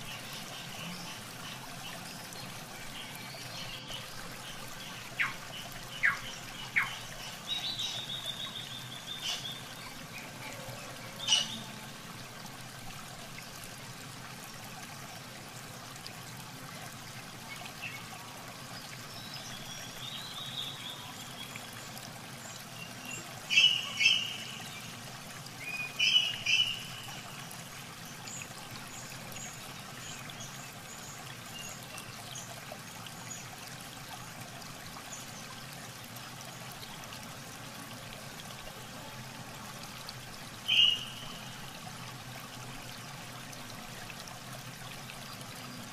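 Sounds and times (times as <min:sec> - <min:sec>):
muddy water trickling and splashing: 0:00.0 - 0:45.9
birds chirping: 0:25.7 - 0:27.2, 0:40.7 - 0:41.6.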